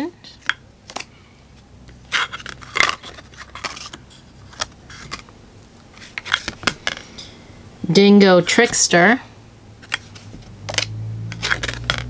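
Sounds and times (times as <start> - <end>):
cards scraping: 1.9 - 7.2, 9.8 - 12.0.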